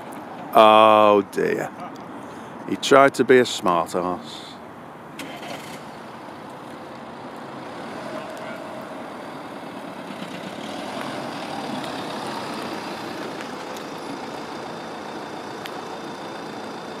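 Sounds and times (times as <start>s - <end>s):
car engine and tyres running: 0.0s - 0.7s, 4.8s - 17.0s.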